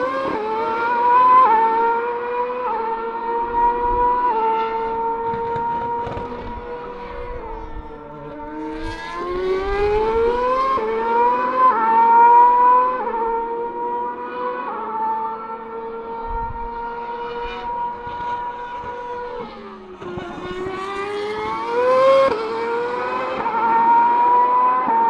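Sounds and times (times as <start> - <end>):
racing car engine high revs: 0.0 - 25.0.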